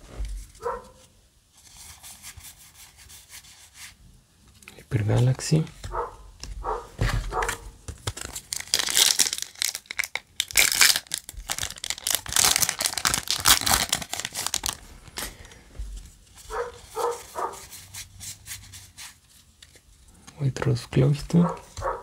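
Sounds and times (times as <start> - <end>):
foil wrapper crinkling: 7.3 - 15.6.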